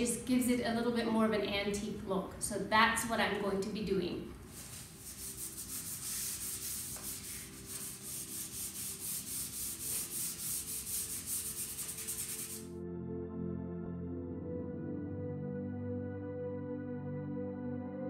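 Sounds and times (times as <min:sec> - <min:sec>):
hand sanding wood: 0:04.5 - 0:12.7.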